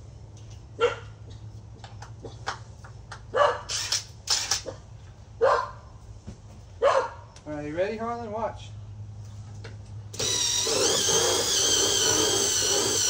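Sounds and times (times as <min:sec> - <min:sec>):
dog barking: 0:00.8 - 0:01.1, 0:03.3 - 0:03.7, 0:05.4 - 0:05.8, 0:06.8 - 0:07.2.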